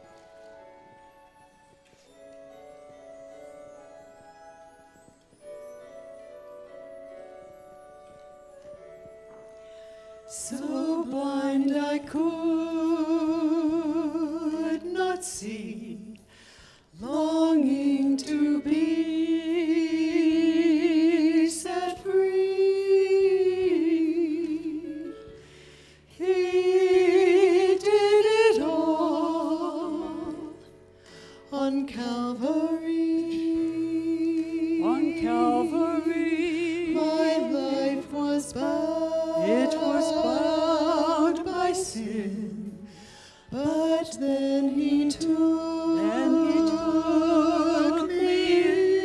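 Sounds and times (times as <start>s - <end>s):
soft instrumental accompaniment: 0.0s - 49.0s
women singing: 10.3s - 16.2s, 17.0s - 25.1s, 26.2s - 30.7s, 31.5s - 42.9s, 43.5s - 49.0s.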